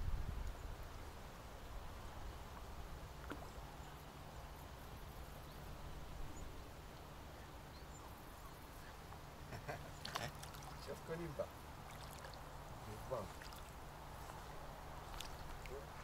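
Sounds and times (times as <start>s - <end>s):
wind buffeting microphone: 0.0s - 0.7s.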